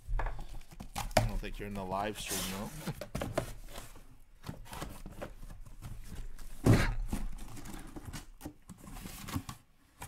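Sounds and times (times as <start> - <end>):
cardboard rubbing and scraping: 2.2 - 4.0.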